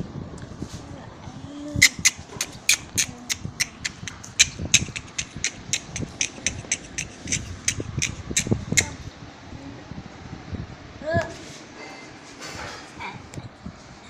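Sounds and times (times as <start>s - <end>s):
sharp taps: 2.0s - 8.9s.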